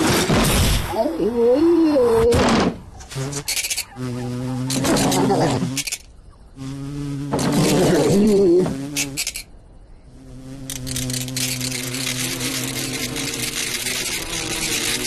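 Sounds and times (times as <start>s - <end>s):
cartoon grasshoppers chirring: 3.0s - 9.6s, 10.2s - 15.0s.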